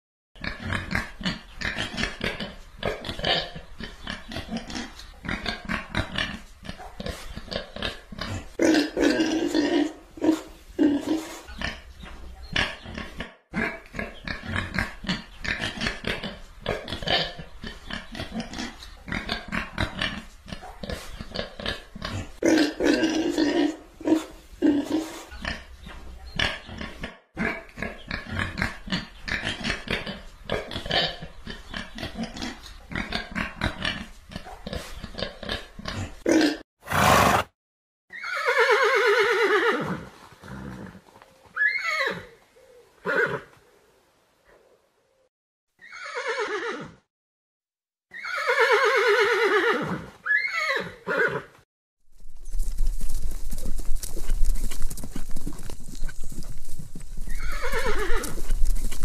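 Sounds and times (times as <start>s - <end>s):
pigs grunting and snuffling: 0.4s - 37.5s, 39.8s - 41.6s, 53.1s - 59.0s
horse whinnying: 36.8s - 37.5s, 38.1s - 41.0s, 41.6s - 42.3s, 43.0s - 43.5s, 45.8s - 47.0s, 48.1s - 51.5s, 57.3s - 58.5s.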